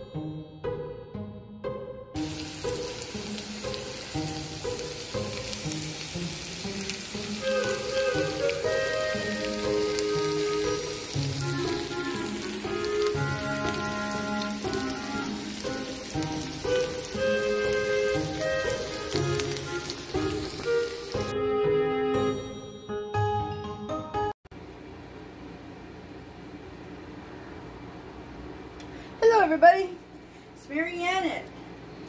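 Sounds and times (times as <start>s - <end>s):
background music with held notes: 0.0s - 24.4s
food sizzling in a skillet: 2.2s - 21.3s.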